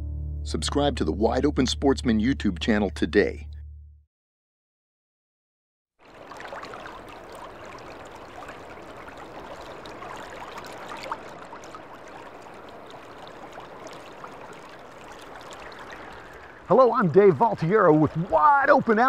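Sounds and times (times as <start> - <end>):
river water babbling over rocks: 6.0 - 18.4.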